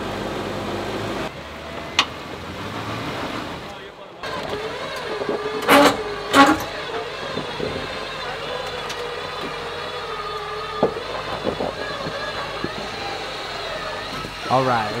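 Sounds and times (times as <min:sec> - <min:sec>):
car engine running: 0:00.0 - 0:15.0
steady whine: 0:03.7 - 0:15.0.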